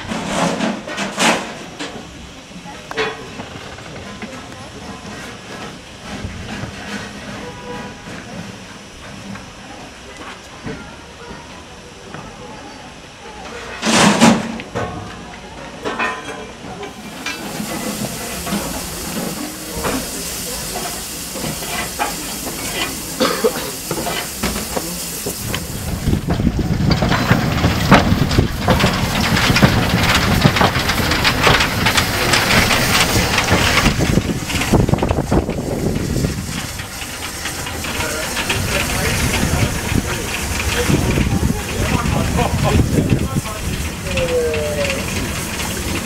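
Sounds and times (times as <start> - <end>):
low rumble of locomotive moving: 0.0 - 46.0
steam locomotive hissing steam: 0.0 - 46.0.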